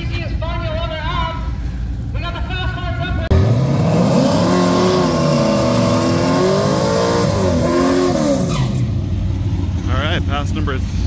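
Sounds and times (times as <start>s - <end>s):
car engine revving: 3.3s - 10.7s.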